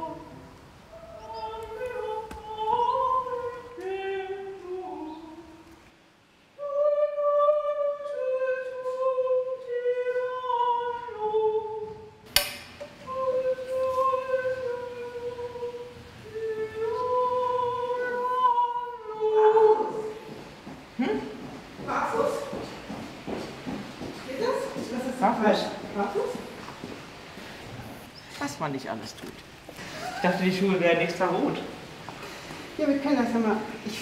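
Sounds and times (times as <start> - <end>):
high voice singing long notes: 0.0 - 5.8, 12.9 - 20.2
sharp click: 12.3 - 12.9.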